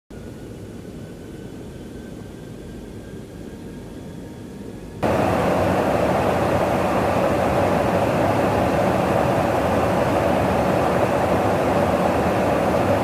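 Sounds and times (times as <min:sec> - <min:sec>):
jet engine and airflow rumble: 0:00.1 - 0:13.0
loud rush of engine and air: 0:04.9 - 0:13.0.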